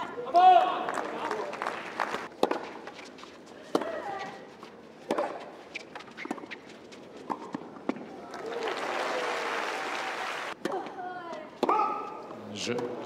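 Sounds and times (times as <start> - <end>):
tennis ball struck by rackets: 2.4 - 2.8, 5.0 - 5.4.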